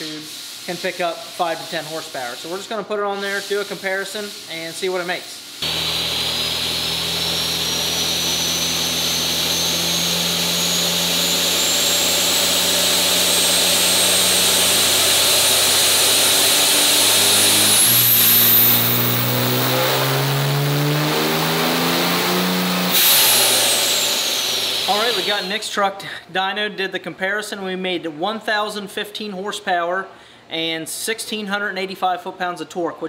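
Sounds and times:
diesel engine pulling hard: 5.6 - 25.5
turbo whistling: 5.6 - 25.6.

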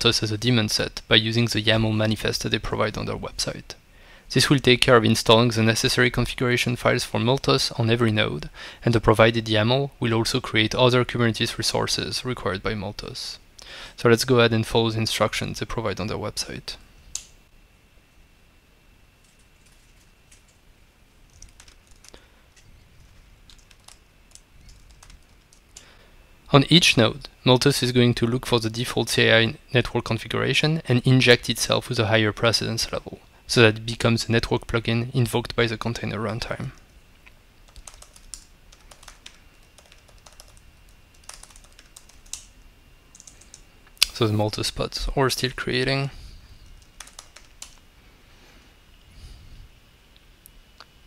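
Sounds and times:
faint keyboard keystrokes: 19.2 - 20.6, 21.3 - 25.9
typing on keyboard: 21.3 - 22.2, 23.1 - 25.6, 37.7 - 42.5, 43.1 - 43.6, 46.8 - 47.8.

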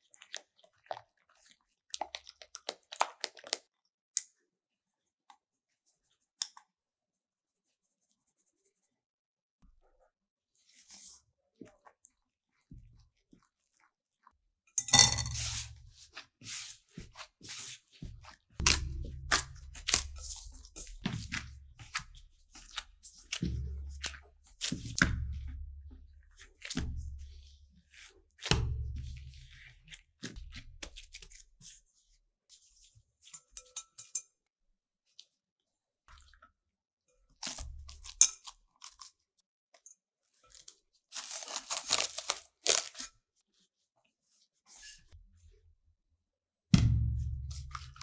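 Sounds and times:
dough tearing and crackling: 2.0 - 3.8, 37.4 - 39.2, 40.6 - 43.2.

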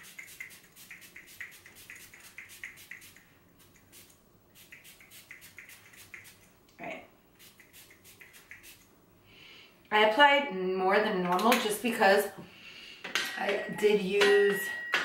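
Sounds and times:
pump spray bottle hissing: 0.0 - 6.5, 7.4 - 8.8.

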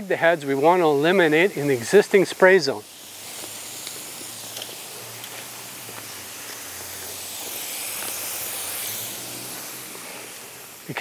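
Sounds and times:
outdoor background hiss: 0.0 - 11.0.

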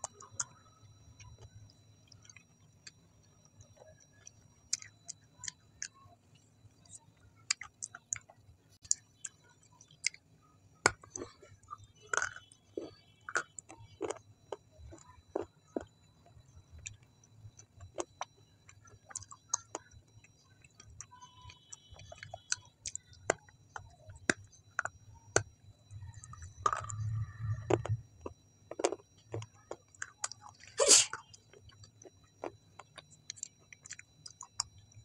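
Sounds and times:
person chewing with lips closed: 0.0 - 34.9.

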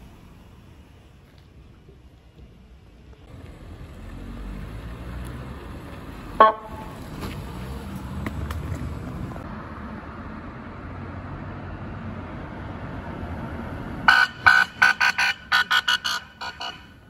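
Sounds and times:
car driving past: 3.3 - 14.2.

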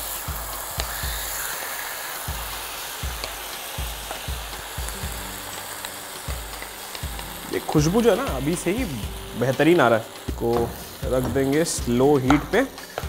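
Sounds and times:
chicken sizzling in a pan: 0.0 - 13.0
wooden spatula soft thumps: 10.3 - 13.0.

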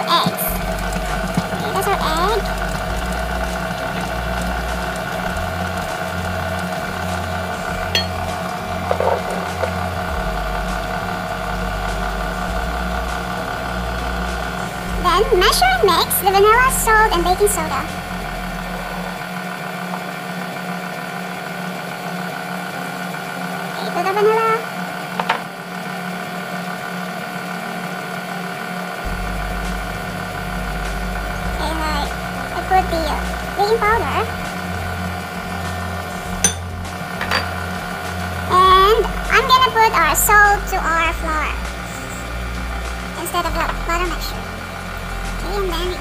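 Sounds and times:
stand mixer motor hum: 0.0 - 46.0
deep rumble: 0.5 - 19.2, 29.0 - 46.0.

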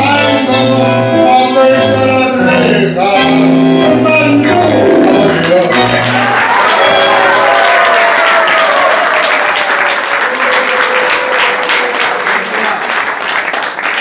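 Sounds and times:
audience applauding: 5.0 - 14.0.

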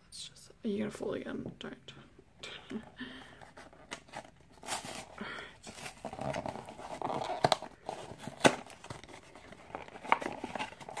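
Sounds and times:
cardboard box rustling and crinkling: 3.4 - 11.0.

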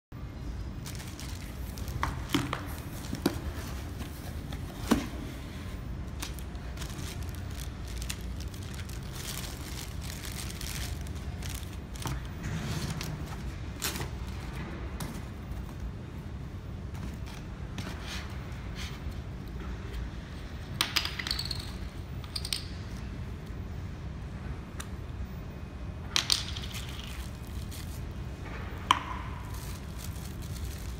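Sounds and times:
steady low hum: 0.1 - 20.8
plastic packaging crinkling: 0.8 - 4.3, 6.0 - 13.2, 29.4 - 30.9.

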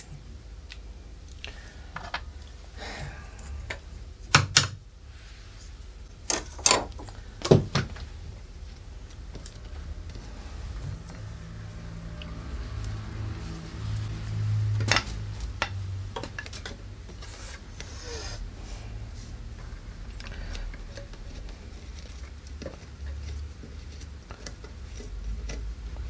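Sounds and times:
low steady hum: 0.0 - 26.0
hands rubbing and scraping wood: 7.9 - 26.0.

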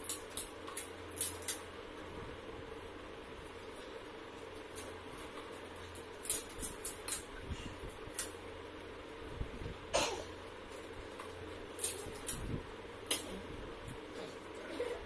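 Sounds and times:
crisp shells cracking: 0.0 - 1.7, 4.6 - 7.3, 10.7 - 13.3
low steady hum: 0.0 - 15.0.

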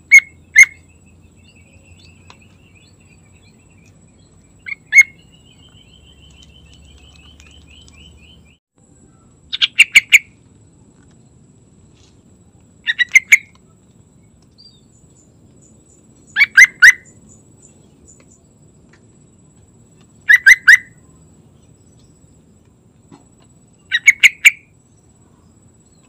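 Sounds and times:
bird singing short phrases: 0.0 - 10.3.

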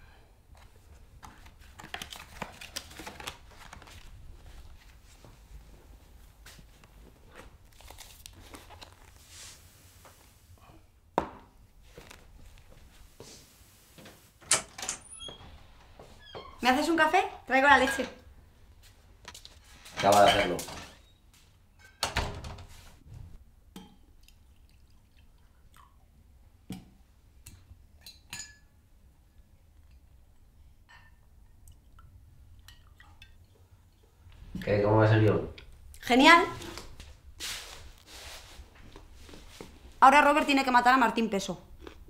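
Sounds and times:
soft rustling: 0.6 - 10.6, 11.6 - 14.4, 36.5 - 40.0.

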